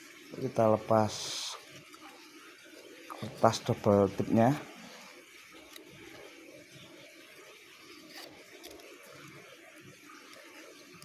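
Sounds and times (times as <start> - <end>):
fingers handling tape and paper: 7.9 - 9.1.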